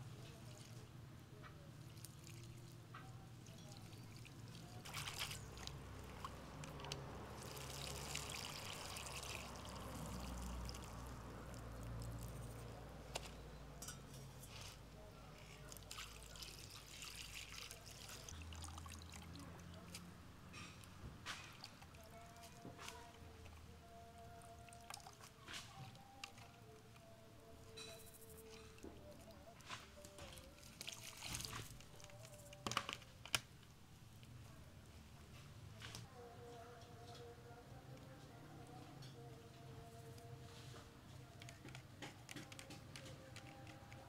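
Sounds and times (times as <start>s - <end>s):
water pouring and trickling: 1.8s - 12.5s, 15.5s - 20.0s, 30.4s - 32.4s.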